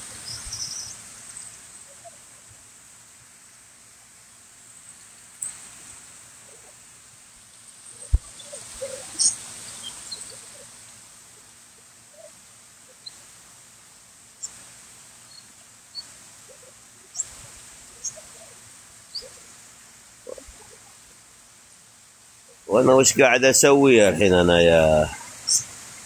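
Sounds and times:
lower bird calls: 0.0s - 2.3s, 7.8s - 10.8s, 15.2s - 19.6s, 20.2s - 21.2s
birds chirping: 0.1s - 2.2s, 7.8s - 10.8s, 15.2s - 21.2s, 22.5s - 25.7s.

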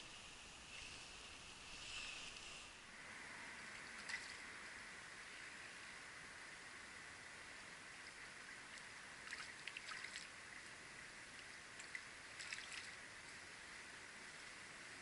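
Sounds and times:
stream flowing over rocks: 2.7s - 15.0s
soft water splashes: 3.6s - 4.6s, 8.0s - 13.5s.

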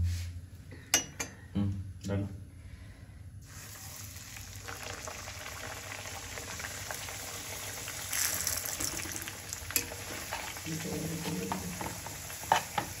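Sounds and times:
deep-frying in hot oil: 3.4s - 13.0s.

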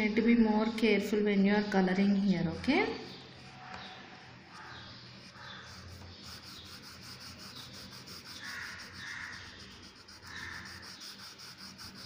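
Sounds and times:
pencil scratching on paper: 4.6s - 12.0s.

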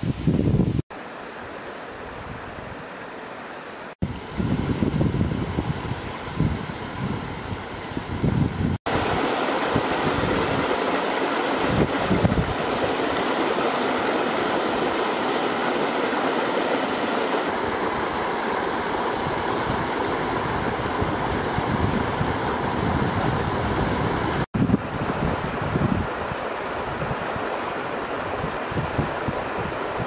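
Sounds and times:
river water rushing: 0.9s - 30.0s.

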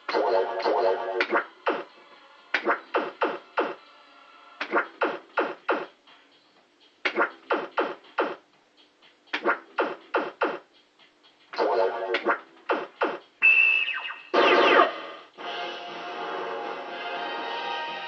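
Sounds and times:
fruit machine bleeps: 13.4s - 15.2s.

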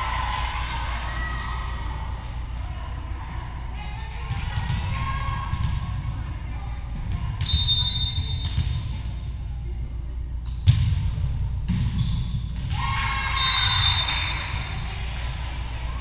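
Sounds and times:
crowd shouting and cheering: 0.0s - 2.4s, 12.7s - 16.0s.

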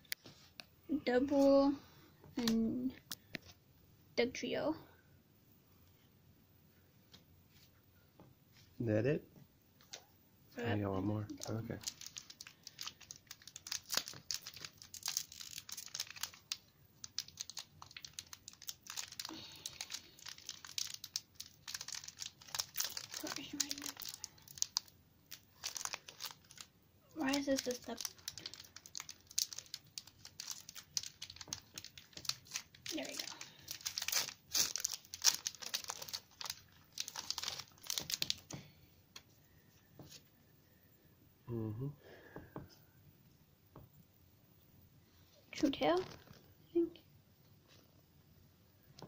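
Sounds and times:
foil wrapper crinkling and tearing: 11.2s - 38.7s.

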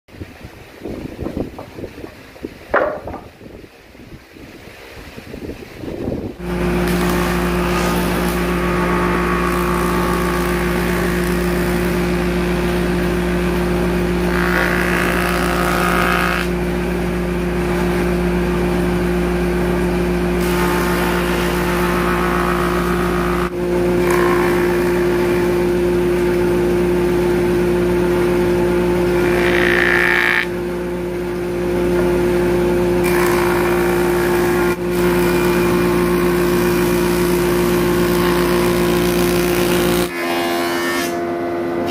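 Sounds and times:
jointer-planer humming: 6.4s - 41.9s
cutterhead shaving boards: 6.5s - 12.8s, 14.2s - 16.5s, 20.4s - 25.6s, 29.1s - 30.5s, 33.0s - 41.2s.

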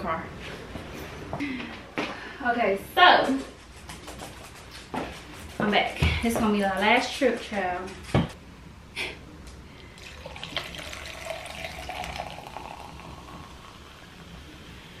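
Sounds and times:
carbonated drink fizzing: 9.8s - 15.0s
drink pouring over ice: 9.9s - 14.8s.

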